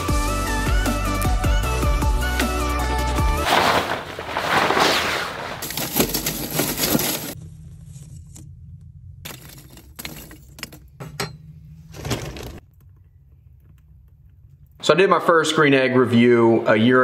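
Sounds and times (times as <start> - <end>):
grill cover rustling: 3.4 - 8.2.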